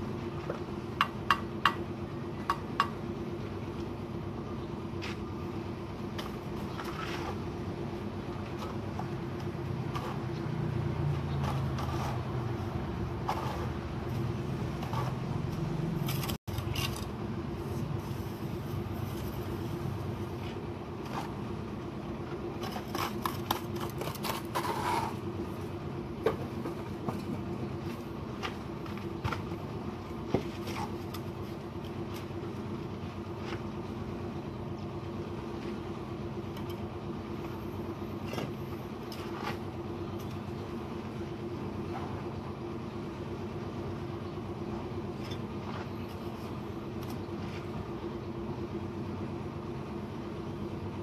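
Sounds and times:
steady low hum: 0:00.0 - 0:51.0
trowel scraping mortar: 0:06.3 - 0:07.6, 0:09.8 - 0:10.4, 0:11.3 - 0:15.4, 0:22.6 - 0:25.3.

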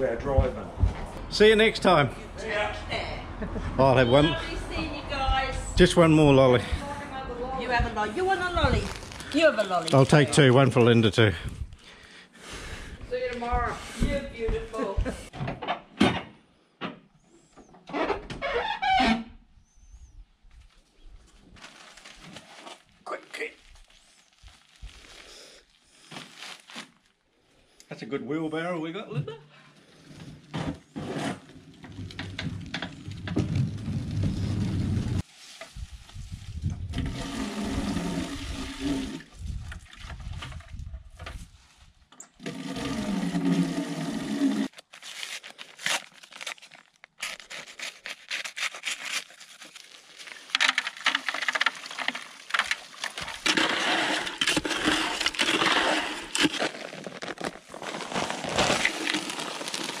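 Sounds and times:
mower wheels rolling over concrete: 0:30.2 - 0:35.3, 0:36.9 - 0:39.3, 0:42.4 - 0:44.7, 0:50.5 - 1:00.0
water running into plastic bucket: 0:36.8 - 0:41.0, 0:42.4 - 0:44.7, 0:50.6 - 1:00.0
dry concrete mix tipped into bucket: 0:50.6 - 1:00.0.

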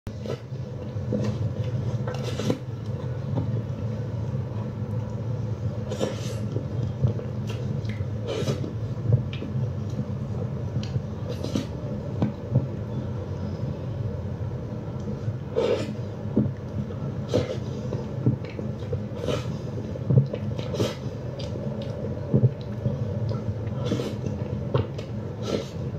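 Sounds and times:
steady low hum: 0:00.1 - 0:25.9.

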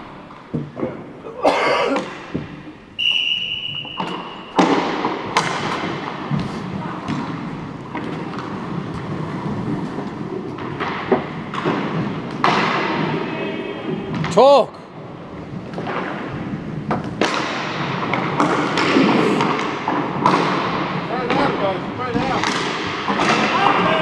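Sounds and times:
hockey sticks and puck knocking: 0:00.3 - 0:01.1, 0:03.7 - 0:13.3, 0:15.3 - 0:24.0
high whistle: 0:03.0 - 0:04.6
skates scraping ice: 0:03.9 - 0:14.3, 0:15.2 - 0:24.0.

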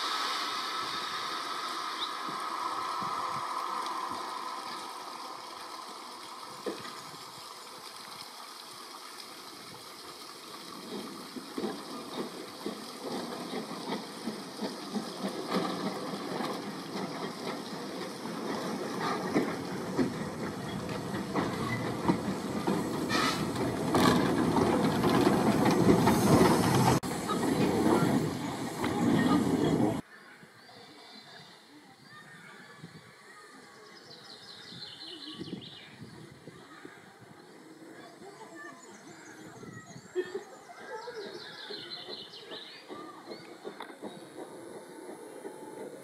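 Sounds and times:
steam locomotive hissing steam: 0:00.0 - 0:07.8, 0:10.0 - 0:30.0, 0:37.2 - 0:46.0.

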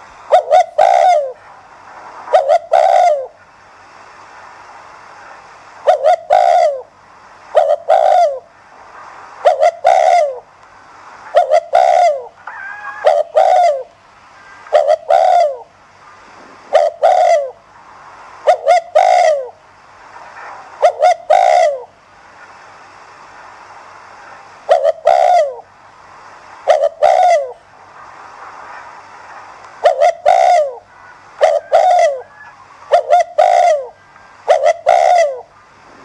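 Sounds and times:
dove cooing: 0:00.3 - 0:01.4, 0:02.3 - 0:03.4, 0:05.8 - 0:06.9, 0:07.5 - 0:08.5, 0:09.4 - 0:10.5, 0:11.3 - 0:13.9, 0:14.7 - 0:15.7, 0:16.7 - 0:17.6, 0:18.5 - 0:19.6, 0:20.8 - 0:21.9, 0:24.7 - 0:25.6, 0:26.7 - 0:27.6, 0:29.8 - 0:36.0.

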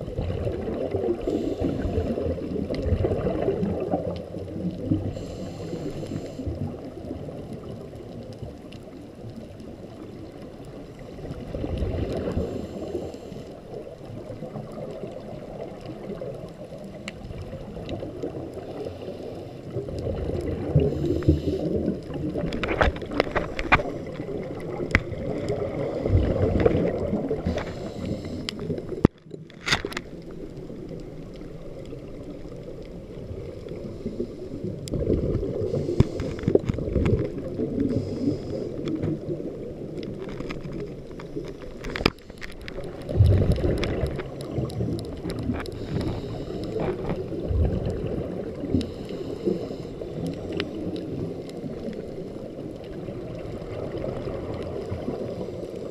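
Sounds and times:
scuba breathing: 0:00.0 - 0:07.8, 0:09.9 - 0:55.9
underwater rushing and gurgling: 0:00.0 - 0:55.9.

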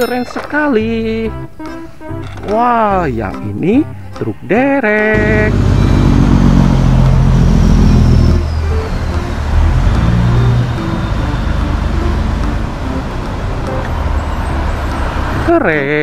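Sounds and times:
music: 0:00.0 - 0:05.2, 0:07.8 - 0:16.0
traffic and tyre noise: 0:05.1 - 0:16.0
vehicle passing with low rumble: 0:05.1 - 0:16.0.

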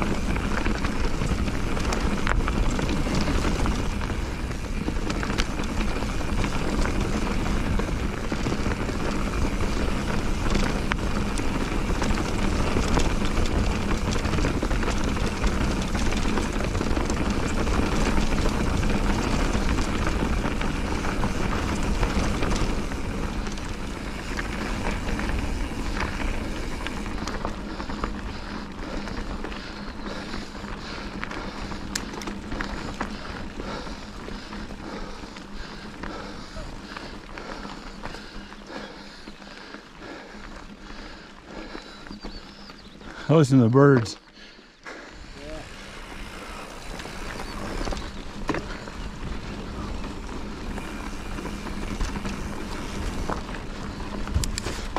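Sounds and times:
scrape and rumble of travel: 0:45.0 - 0:54.9.

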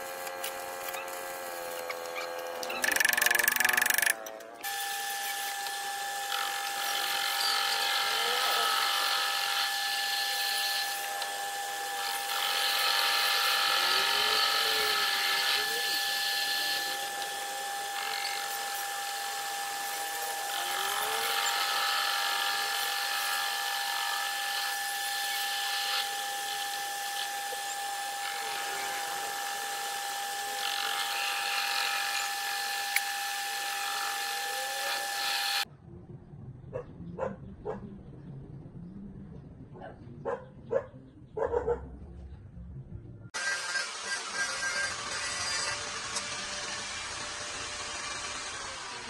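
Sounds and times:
cutting tool scraping steel: 0:00.0 - 0:35.7, 0:43.4 - 0:49.0
metal lathe motor whine: 0:00.0 - 0:35.7, 0:43.4 - 0:49.0
dog barking: 0:36.7 - 0:37.9, 0:39.8 - 0:42.0.

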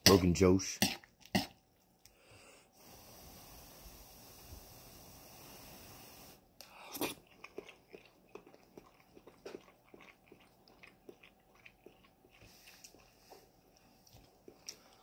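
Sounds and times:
faint chewing with mouth clicks: 0:06.6 - 0:15.0.

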